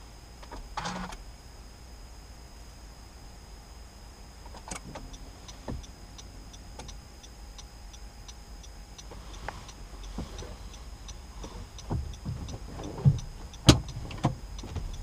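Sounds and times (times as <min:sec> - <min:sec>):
car cabin low rumble: 0:00.0 - 0:15.0
light regular ticking: 0:04.0 - 0:15.0.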